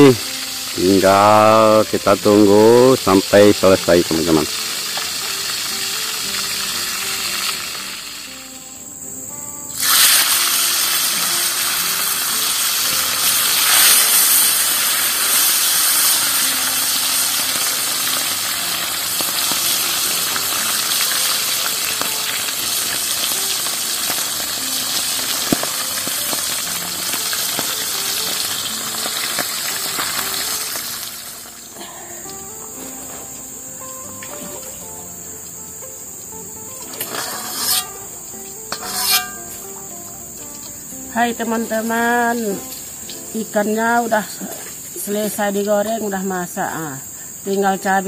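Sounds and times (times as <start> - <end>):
fish frying in hot oil: 0.0 - 8.4, 9.8 - 31.9.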